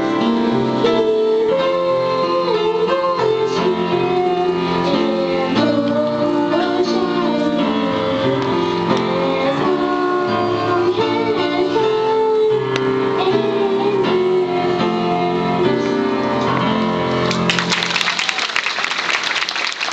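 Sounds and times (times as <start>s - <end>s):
piano accompaniment: 0.0s - 19.9s
girl singing into microphone: 0.1s - 16.2s
audience applause: 17.2s - 19.9s.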